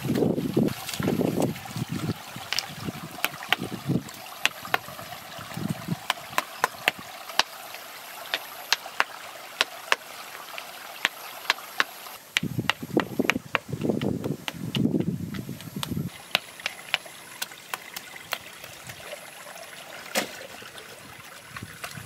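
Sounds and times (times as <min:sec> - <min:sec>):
faint water trickling: 0:00.0 - 0:12.2, 0:15.1 - 0:22.0
stones clacking together: 0:02.0 - 0:05.0, 0:05.9 - 0:07.6, 0:08.2 - 0:18.5.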